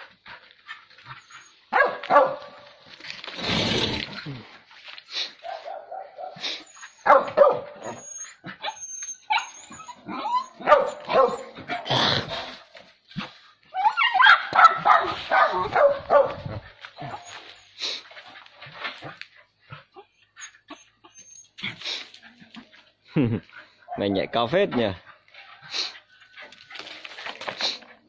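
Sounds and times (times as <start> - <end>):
dog barking and yipping: 0.7 - 2.7, 5.4 - 12.5, 13.7 - 17.6, 23.6 - 27.0.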